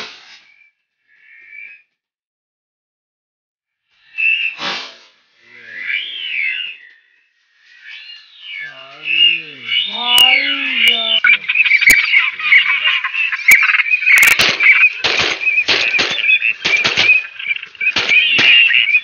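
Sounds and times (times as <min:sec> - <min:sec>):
waterfowl flock calling: 0:07.8 - 0:19.0
wings flapping: 0:10.8 - 0:19.0
sharp cracks: 0:14.1 - 0:19.0.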